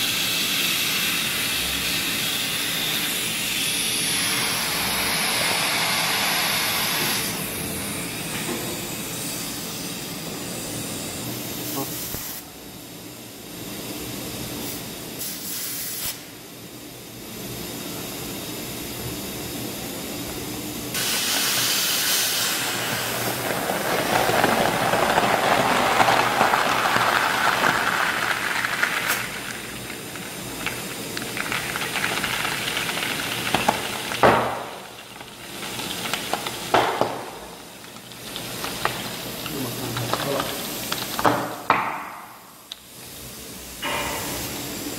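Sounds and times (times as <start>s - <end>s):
compressed air hissing: 0.0s - 12.5s, 14.6s - 16.4s, 20.9s - 26.0s.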